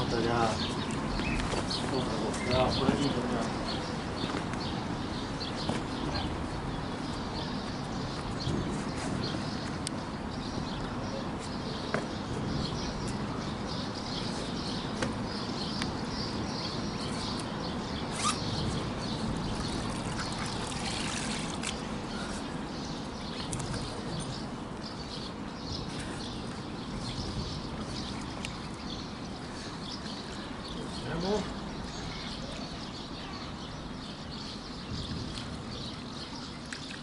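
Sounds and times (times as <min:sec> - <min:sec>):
birds chirping: 0:00.0 - 0:37.0
water sloshing and splashing: 0:19.6 - 0:21.9.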